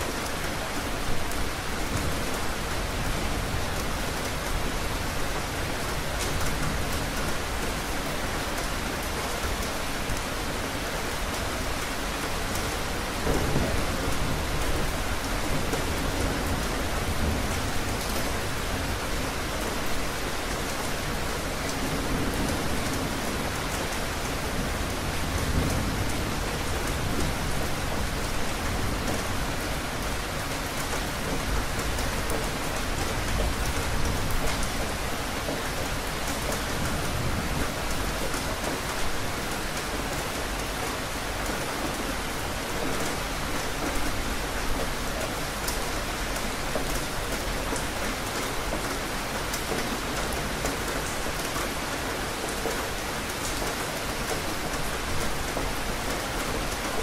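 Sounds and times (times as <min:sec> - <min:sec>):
steady rain hiss: 0:00.0 - 0:57.0.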